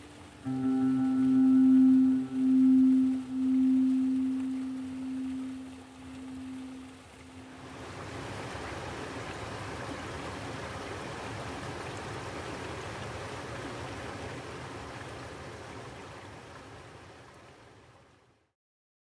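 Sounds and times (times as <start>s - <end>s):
stream water rushing: 0.0s - 18.0s.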